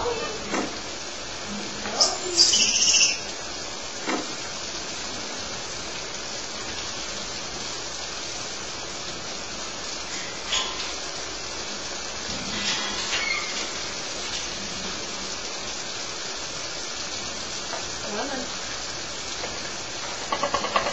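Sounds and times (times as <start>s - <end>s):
steady rushing hiss: 0.0s - 20.9s
monkey squealing: 1.9s - 3.3s.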